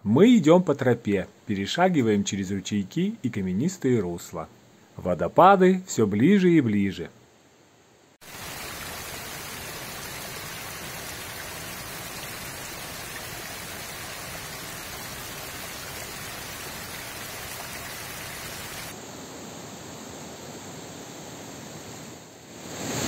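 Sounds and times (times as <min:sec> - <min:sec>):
stream splashing over rocks: 0:08.2 - 0:19.0.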